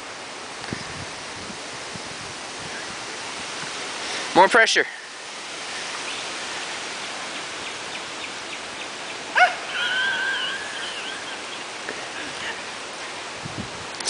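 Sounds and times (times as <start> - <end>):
outdoor background hiss: 0.0 - 14.0
distant pitched call: 9.3 - 11.7.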